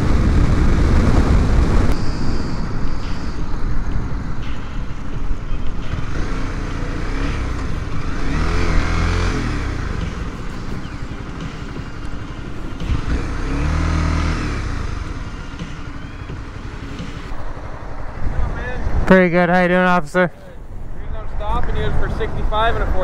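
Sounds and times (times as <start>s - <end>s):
wind on microphone: 0.0s - 6.3s
motorcycle engine accelerating: 0.0s - 19.1s.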